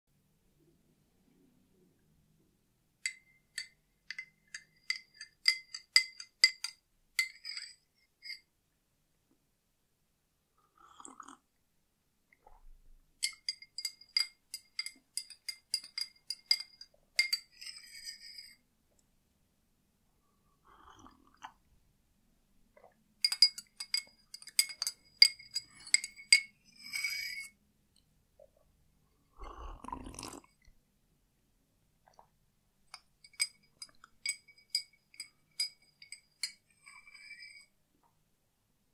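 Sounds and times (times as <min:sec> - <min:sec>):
metal spoon clinking in a glass: 0:03.0 - 0:08.5, 0:13.2 - 0:18.6, 0:23.2 - 0:27.6, 0:32.9 - 0:37.7.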